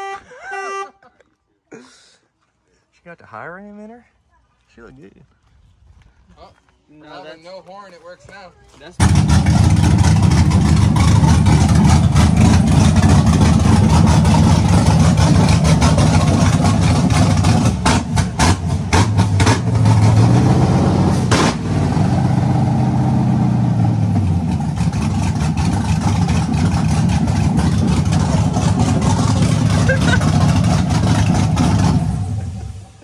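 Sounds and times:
truck engine running: 0:09.0 - 0:33.0.

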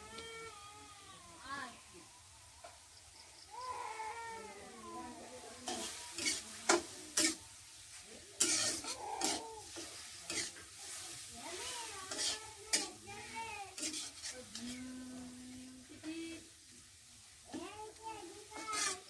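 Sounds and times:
food sizzling in oil: 0:00.0 - 0:19.0
metal spatula scraping wok: 0:05.3 - 0:16.5, 0:17.5 - 0:19.0.

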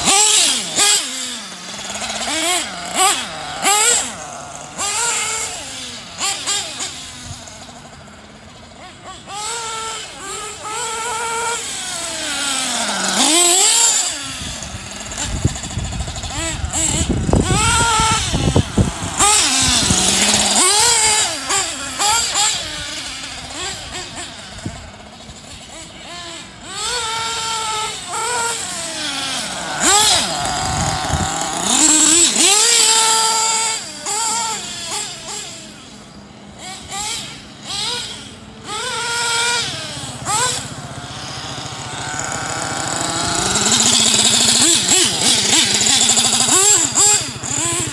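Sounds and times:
small nitro engine revving: 0:00.0 - 0:47.9.

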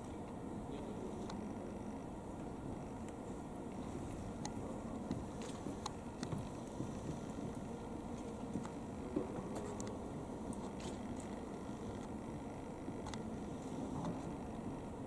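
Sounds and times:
faint clicks and scrapes: 0:03.0 - 0:14.7.

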